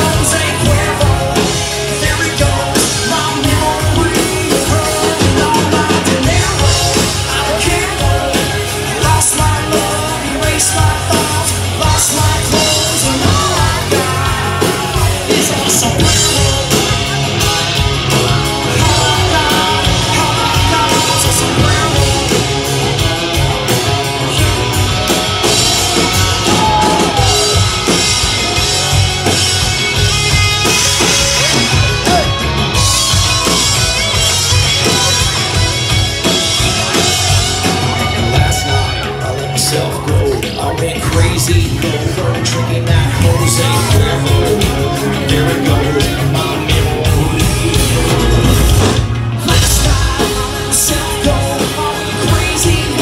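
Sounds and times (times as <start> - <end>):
bass guitar: 0.0 - 53.0
drum kit: 0.0 - 53.0
electric guitars: 0.0 - 53.0.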